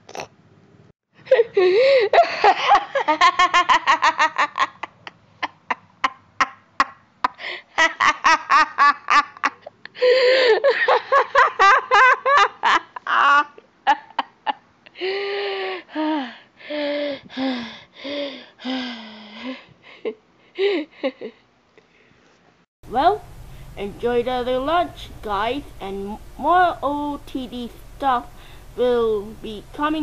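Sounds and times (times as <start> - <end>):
person laughing hard: 1.3 - 14.6.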